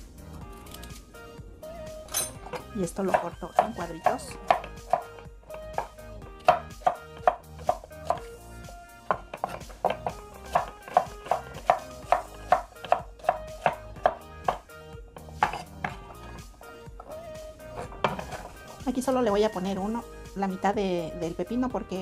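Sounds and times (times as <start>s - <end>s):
background music: 0.0s - 22.0s
knife chopping on wooden board: 3.1s - 8.3s, 9.1s - 14.6s, 15.2s - 16.6s, 17.7s - 18.7s.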